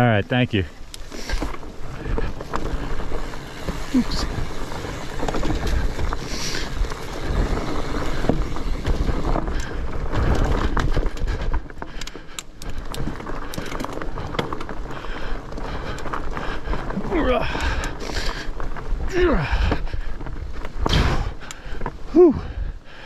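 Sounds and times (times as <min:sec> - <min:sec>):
bike clicking and rattling: 0:00.0 - 0:23.0
bike tyres rolling on dirt: 0:00.0 - 0:23.0.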